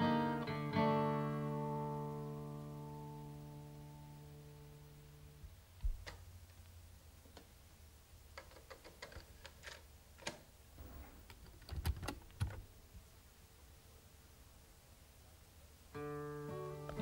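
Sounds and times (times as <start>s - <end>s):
faint hum of running tape: 0.0s - 17.0s
small plastic clicks: 8.3s - 10.5s.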